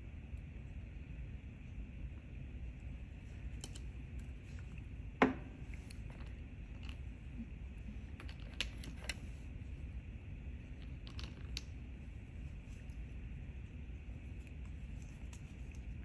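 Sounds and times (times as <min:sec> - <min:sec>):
low steady hum: 0:00.0 - 0:16.0
bottle knocking on table: 0:05.2 - 0:05.5.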